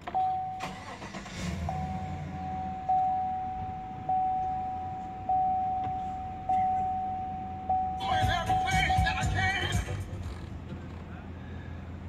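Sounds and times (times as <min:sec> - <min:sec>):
dashboard warning chime: 0:00.0 - 0:09.4
car engine idling: 0:00.0 - 0:12.0.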